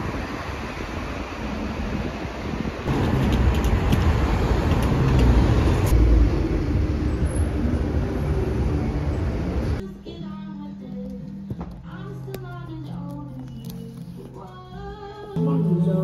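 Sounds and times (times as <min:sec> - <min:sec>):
traffic rumble: 0:00.0 - 0:10.0
music: 0:09.8 - 0:16.0.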